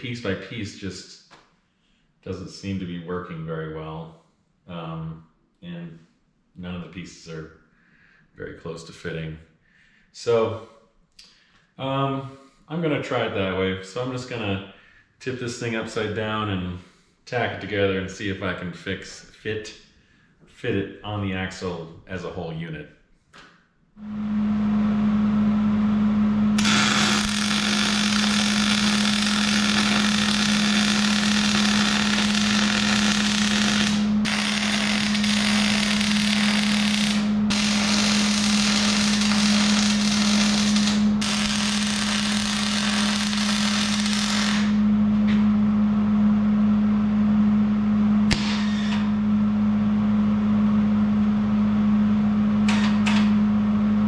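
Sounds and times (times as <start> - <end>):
steady low hum: 24.0 - 54.0
welder arc crackling: 26.6 - 44.8, 48.3 - 49.1.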